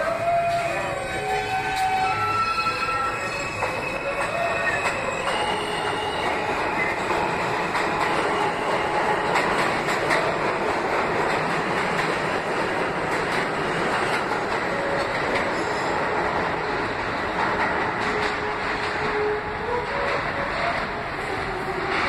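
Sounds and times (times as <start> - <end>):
subway train wheels rumbling: 0.0 - 22.0
train clicks: 0.0 - 22.0.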